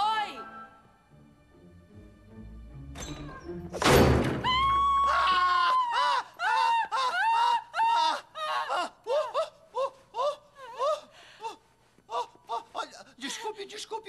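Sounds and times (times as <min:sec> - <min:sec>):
woman screaming: 0:04.4 - 0:09.6.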